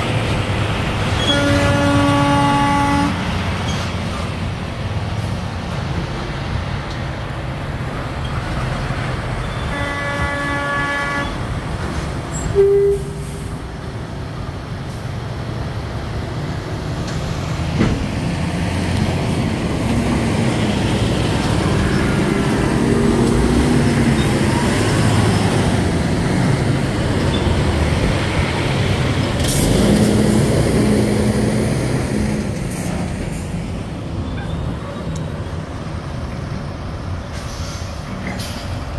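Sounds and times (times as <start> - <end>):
diesel trucks driving past: 0.0 - 38.9
truck horn: 1.1 - 3.3, 9.5 - 11.5, 12.5 - 13.5.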